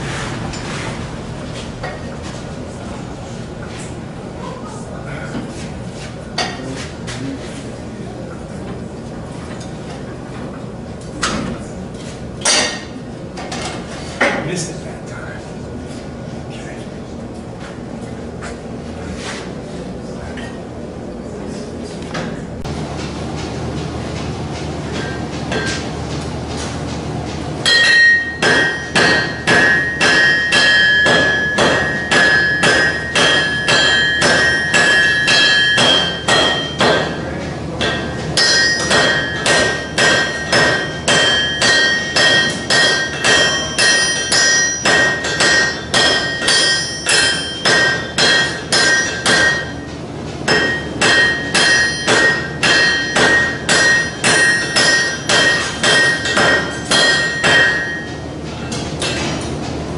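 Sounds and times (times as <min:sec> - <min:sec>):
hammer striking on anvil: 0:12.4 - 0:13.0, 0:27.6 - 0:59.4
anvil ringing: 0:27.6 - 0:49.9, 0:50.5 - 0:58.2.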